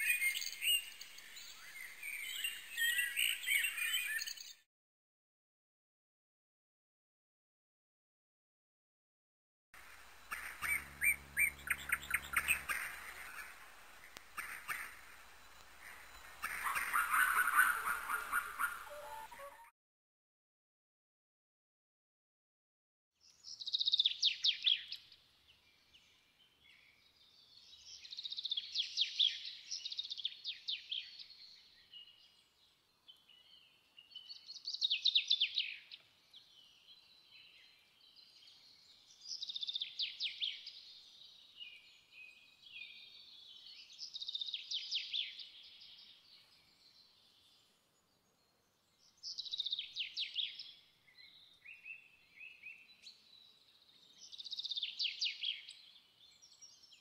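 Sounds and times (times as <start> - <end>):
songbird trilling: 10.2 - 19.6.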